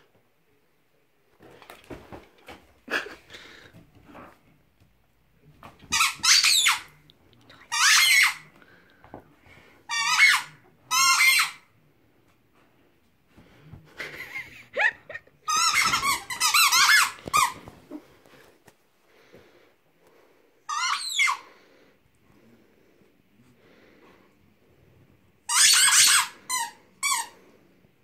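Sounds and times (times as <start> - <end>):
squeaky toy squeaking: 5.9 - 6.9, 7.7 - 8.4, 9.9 - 11.6, 15.5 - 17.6, 20.7 - 21.4, 25.5 - 27.4.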